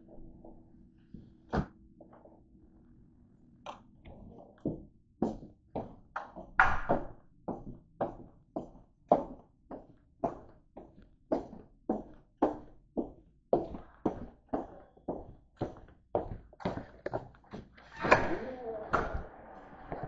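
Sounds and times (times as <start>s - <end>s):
footsteps on a hard floor: 7.5s - 18.5s.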